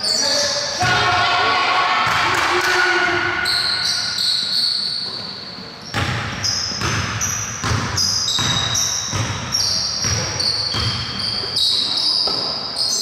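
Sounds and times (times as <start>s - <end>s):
basketball bouncing on gym floor: 5.0s - 12.6s.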